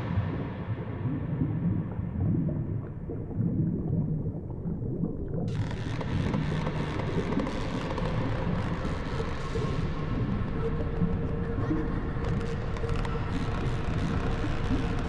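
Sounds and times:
dark ambient drone: 5.0 - 15.0.

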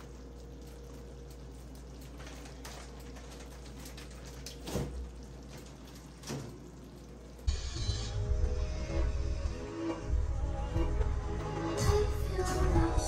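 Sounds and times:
sauce bubbling in a skillet: 0.0 - 7.6.

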